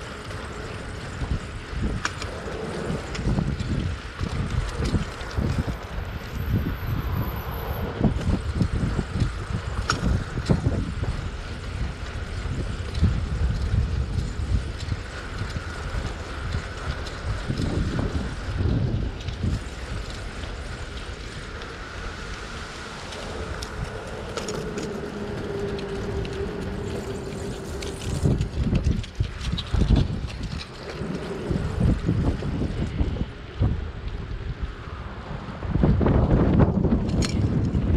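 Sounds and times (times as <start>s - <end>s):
bicycle tyres rolling on pavement: 0.0s - 37.9s
wind buffeting microphone: 0.0s - 37.9s.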